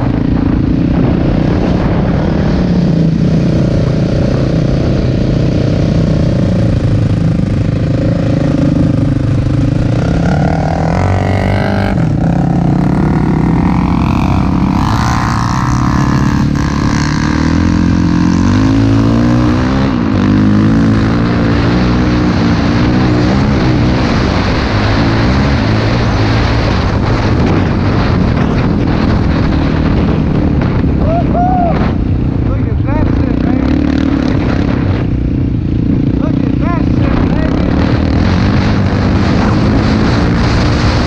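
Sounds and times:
quad engine revving: 0.0 - 30.7, 33.0 - 35.2, 35.8 - 41.0.

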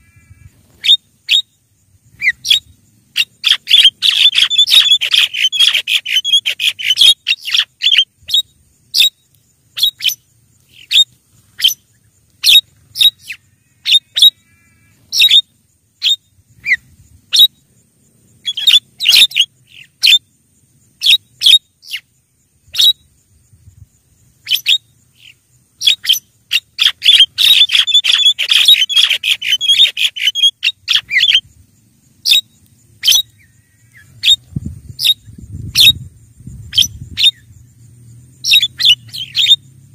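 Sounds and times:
myna bird harsh chattering calls: 2.2 - 17.6, 18.4 - 20.2, 24.4 - 31.4, 38.4 - 39.7.

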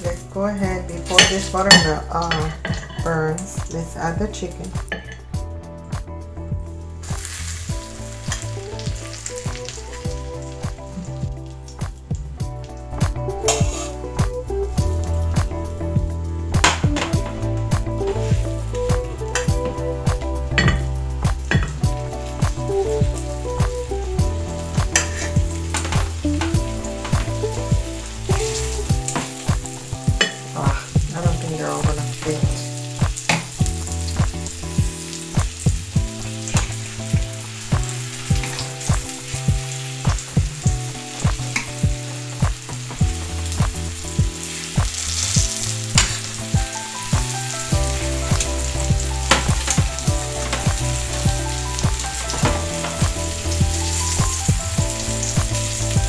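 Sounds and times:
chicken frying in butter: 0.0 - 5.2, 7.0 - 15.5, 16.6 - 56.0
metal fork scraping pan: 13.5 - 14.0.

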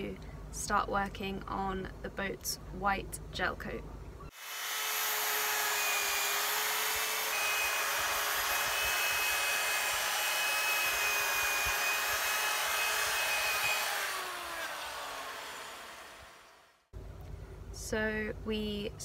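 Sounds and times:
electric polisher motor whine: 4.3 - 16.7
polisher winding down: 4.4 - 16.6.

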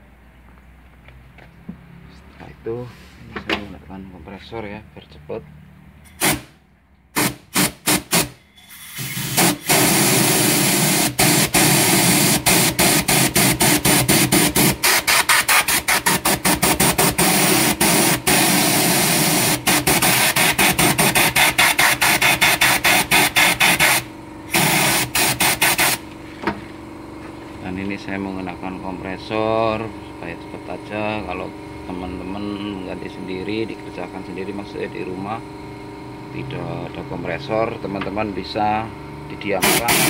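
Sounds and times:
compressed-air blow gun hissing: 7.2 - 16.0, 17.2 - 26.0.

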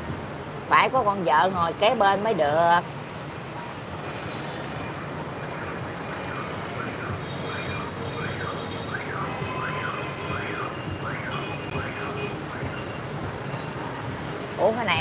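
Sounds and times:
street traffic hum: 0.0 - 15.0
car alarm siren: 5.8 - 13.2.

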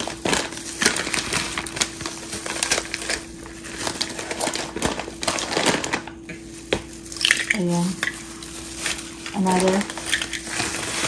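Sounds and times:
plastic bag crinkling: 0.0 - 11.0
frozen peas dropping into cup: 4.0 - 11.0.

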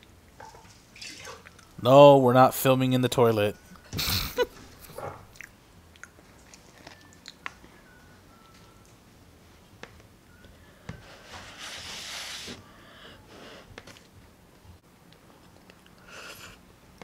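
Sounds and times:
soft chewing: 4.9 - 7.8, 15.1 - 17.0.

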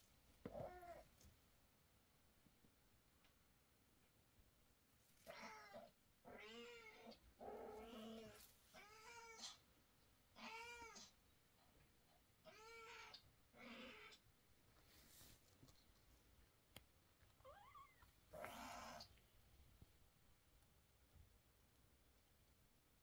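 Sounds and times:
cat meowing: 17.4 - 19.1.

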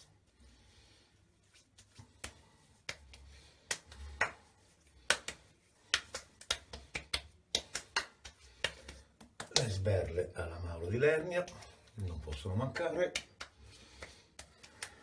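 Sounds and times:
wet palm slaps on skin: 1.8 - 9.9, 11.6 - 15.0.

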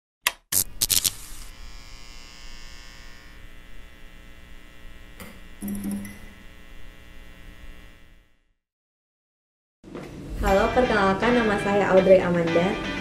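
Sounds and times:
long electronic held tone: 5.5 - 8.1.

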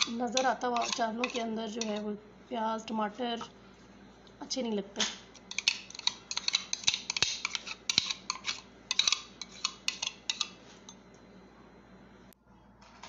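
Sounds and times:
spoon scraping plastic bowl: 0.0 - 2.1, 5.5 - 10.9.

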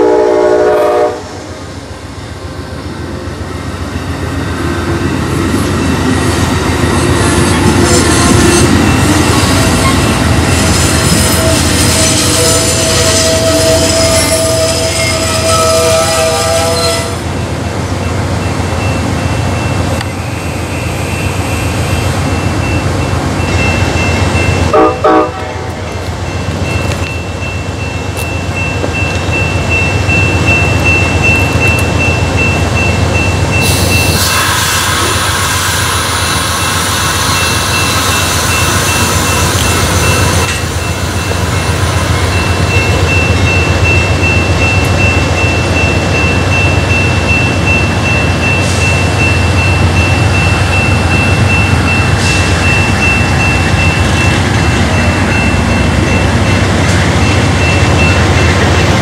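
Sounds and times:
train wheels rumbling on rail: 0.0 - 59.0
high wheel squeal: 7.2 - 17.2.

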